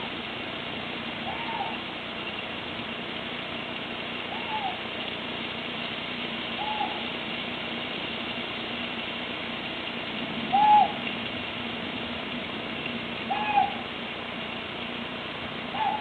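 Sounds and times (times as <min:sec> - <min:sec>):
steady hiss: 0:00.0 - 0:16.0
owl hooting: 0:01.2 - 0:01.9, 0:04.3 - 0:04.9, 0:06.5 - 0:07.1, 0:10.5 - 0:11.1, 0:13.2 - 0:14.0, 0:15.7 - 0:16.0.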